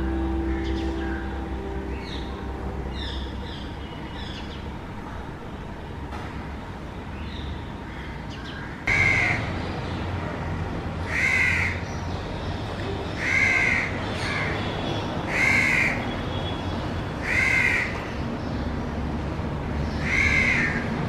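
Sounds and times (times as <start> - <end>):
crow cawing: 8.9 - 9.4, 17.2 - 18.0, 20.0 - 20.8.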